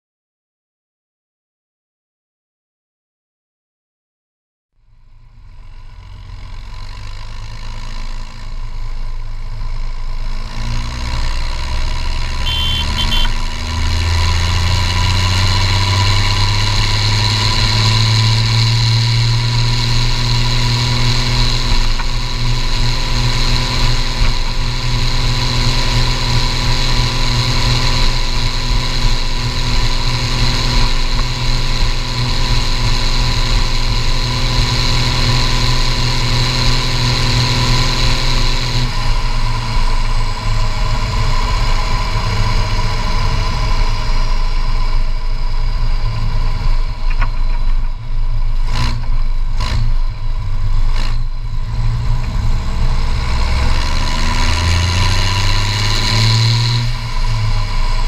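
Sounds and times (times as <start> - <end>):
tractor diesel engine accelerating: 4.9 - 58.0
turbo whistle: 12.4 - 13.5.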